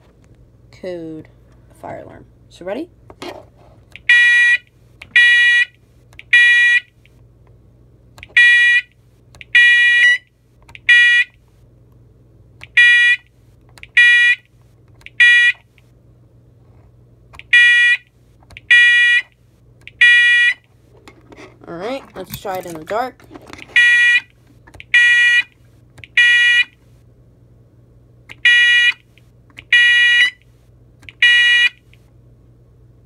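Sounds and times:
fire alarm horn beeps: 4.0 - 6.9, 8.3 - 11.4, 12.7 - 13.3, 14.0 - 14.5, 15.1 - 15.6, 17.4 - 19.4, 20.0 - 20.7, 23.7 - 24.3, 24.9 - 25.6, 26.2 - 26.8, 28.3 - 29.0, 29.6 - 30.4, 31.1 - 31.8.

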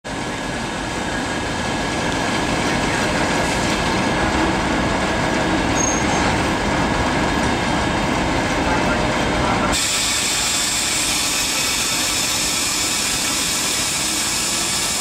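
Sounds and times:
diesel locomotive engine running: 0.1 - 15.0
brief high squeal: 5.8 - 6.4.

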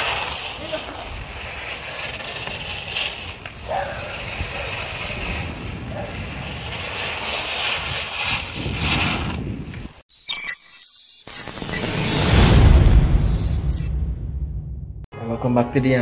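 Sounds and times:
bicycle tyres rolling on asphalt: 0.0 - 10.0
wind on microphone: 3.6 - 10.0.

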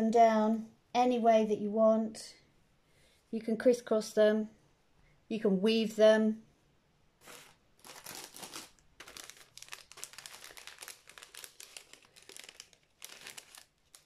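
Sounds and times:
silk fibres rustling and crinkling: 7.2 - 14.0.

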